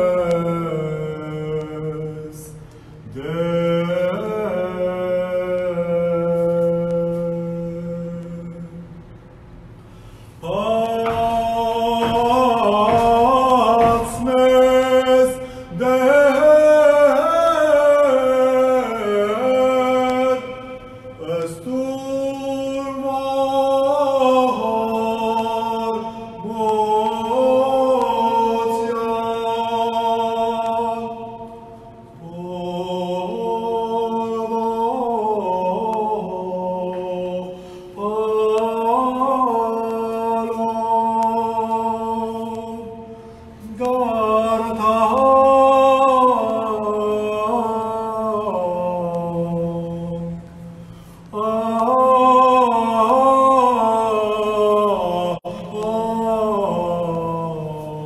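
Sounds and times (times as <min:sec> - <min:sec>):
man chanting: 0:00.0 - 0:08.8, 0:10.4 - 0:31.6, 0:51.3 - 0:58.0.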